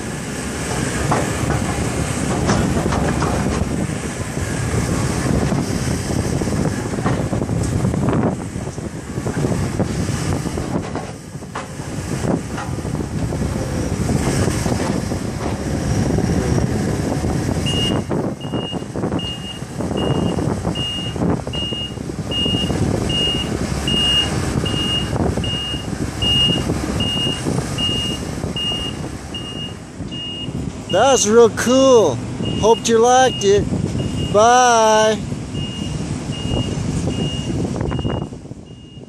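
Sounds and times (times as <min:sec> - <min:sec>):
excavator diesel engine: 0:00.0 - 0:39.0
travel alarm beeping: 0:17.6 - 0:31.0, 0:32.4 - 0:34.4, 0:35.6 - 0:39.0.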